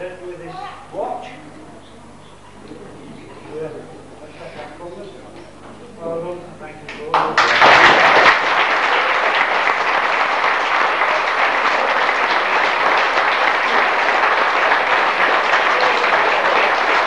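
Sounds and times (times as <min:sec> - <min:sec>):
audience applauding: 0:07.1 - 0:17.0.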